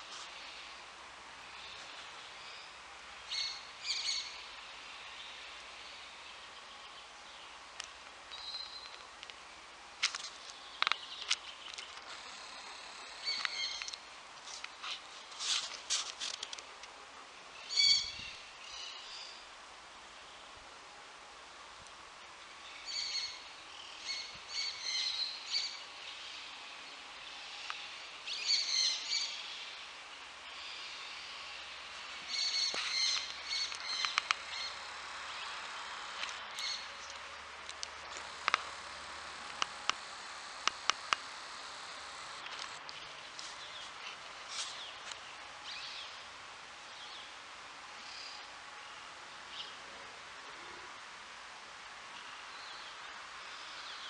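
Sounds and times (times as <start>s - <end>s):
faint outdoor hiss: 0.0s - 54.0s
high twittering calls: 1.5s - 7.6s, 10.5s - 14.1s, 17.6s - 19.4s, 22.6s - 26.6s, 30.4s - 44.0s
birds chirping: 10.3s - 14.1s, 22.6s - 44.1s
sharp clicks: 33.1s - 34.4s, 36.1s - 38.8s, 39.4s - 43.0s.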